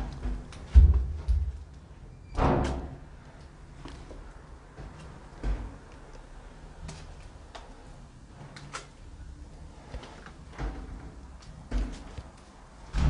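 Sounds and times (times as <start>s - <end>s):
slow footsteps: 3.2s - 8.7s.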